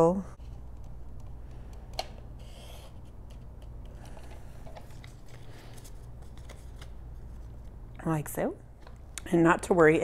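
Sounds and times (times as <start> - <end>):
paper clicks and rustles: 0.7 - 7.7.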